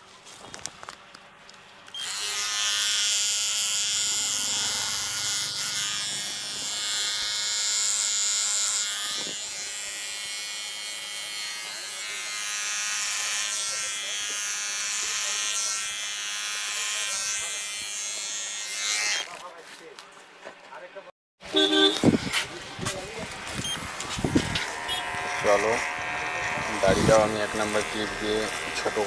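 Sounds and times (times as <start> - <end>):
electric hair clipper buzzing: 1.9 - 19.3, 23.2 - 29.0.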